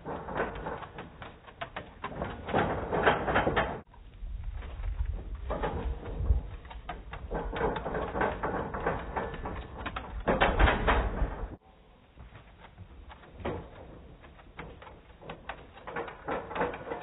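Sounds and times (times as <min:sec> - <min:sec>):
running feet patters and thuds: 0:00.0 - 0:17.0
low rumble: 0:03.9 - 0:07.4.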